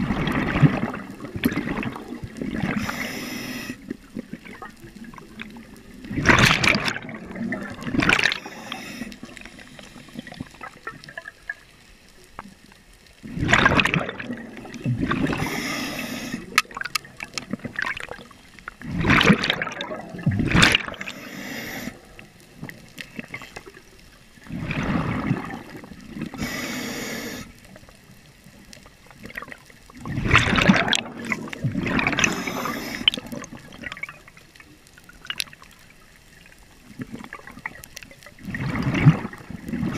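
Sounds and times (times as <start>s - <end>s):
bubbling and hissing: 0.0s - 11.8s, 13.2s - 34.4s, 36.3s - 39.9s
underwater regulator breathing: 2.6s - 3.9s, 8.1s - 10.6s, 15.1s - 16.7s, 20.8s - 22.2s, 26.3s - 27.6s, 31.3s - 33.4s.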